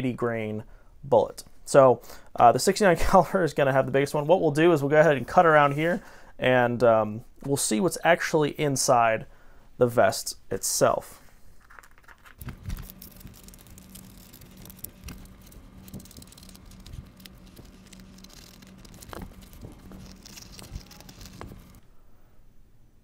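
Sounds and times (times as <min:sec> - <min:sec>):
fabric and plastic wrap rustling: 0:11.5 - 0:21.8
faint low hum: 0:12.4 - 0:23.0.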